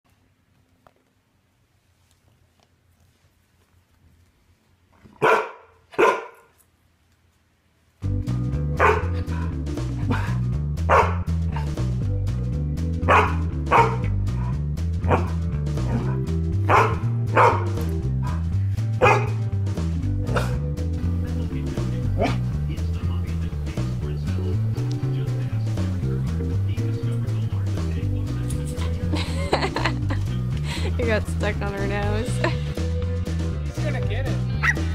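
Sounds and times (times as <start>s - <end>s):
dog barking: 5.2s - 6.5s, 8.8s - 11.7s, 13.1s - 14.1s, 15.1s - 18.4s, 19.0s - 19.4s, 20.3s - 20.6s, 22.2s - 22.5s, 34.6s - 34.8s
background music with bass line: 8.0s - 34.9s.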